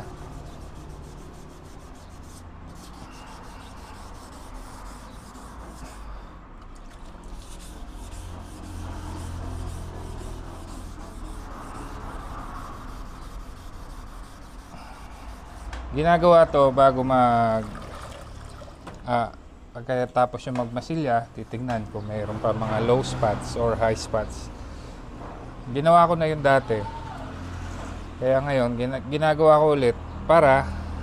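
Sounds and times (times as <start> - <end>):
sandpaper rubbing on panel: 0.0 - 6.2, 7.2 - 16.3.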